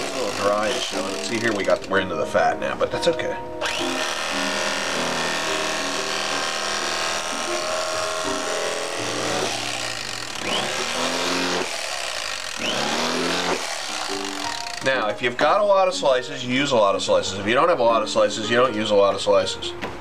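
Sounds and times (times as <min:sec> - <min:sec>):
electric carving knife running: 0:00.0 - 0:02.0, 0:03.6 - 0:15.1.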